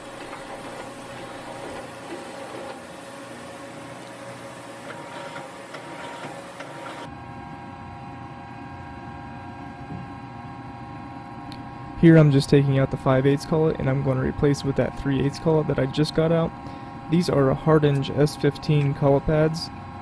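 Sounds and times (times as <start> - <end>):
lathe mechanical whir: 0.0 - 7.8
steady machine hum: 0.0 - 20.0.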